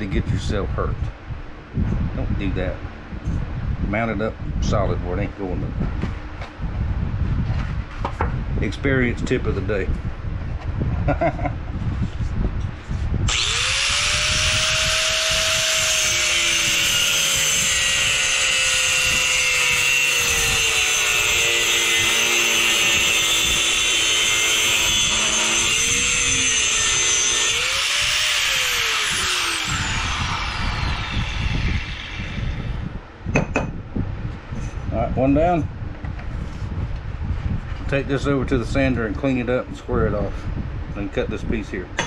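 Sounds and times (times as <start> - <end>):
angle grinder cutting metal pipe: 13.3 - 33.0.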